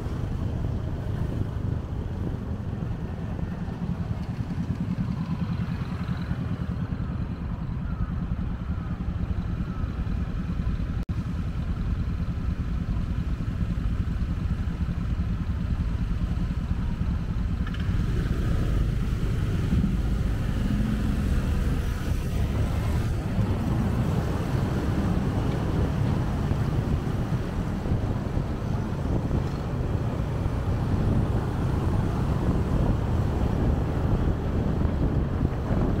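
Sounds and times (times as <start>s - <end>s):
road and traffic noise: 0.0s - 36.0s
wind rush over microphone: 18.0s - 36.0s.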